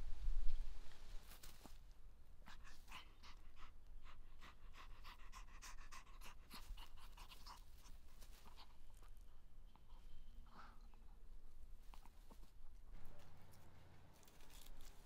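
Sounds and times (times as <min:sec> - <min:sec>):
small dog panting: 0:02.4 - 0:11.2.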